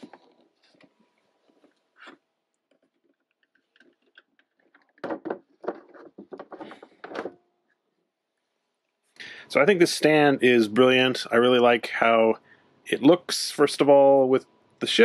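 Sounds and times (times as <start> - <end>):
plastic knocks and taps: 2.7 - 7.4.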